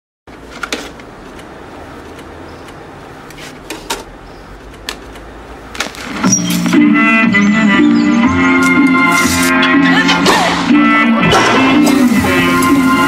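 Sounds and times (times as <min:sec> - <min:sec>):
music playing: 0:06.1 - 0:13.0.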